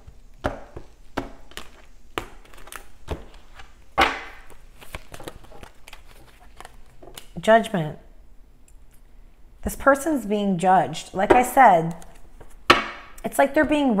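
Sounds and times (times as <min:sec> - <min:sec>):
cards shuffled on a table: 0:00.0 - 0:07.4.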